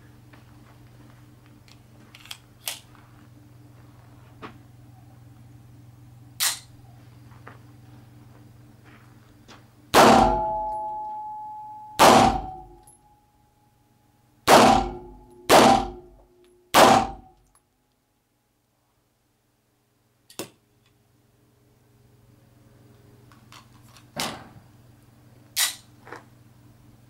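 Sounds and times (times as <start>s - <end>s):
pistol shots ringing indoors: 9.9s - 12.9s, 14.5s - 17.4s.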